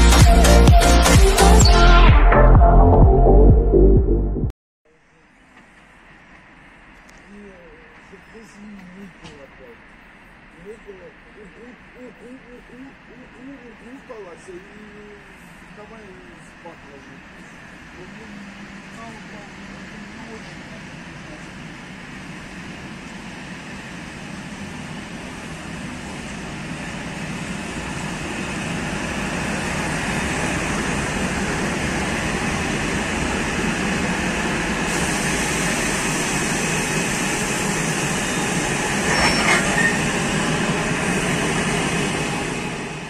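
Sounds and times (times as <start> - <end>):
train wheels rumbling: 5.6 - 43.0
high squeal: 37.9 - 40.3.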